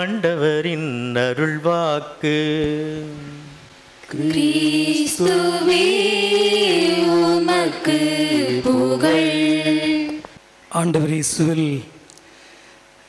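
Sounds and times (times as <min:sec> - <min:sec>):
voices singing liturgical chant: 0:04.1 - 0:10.4.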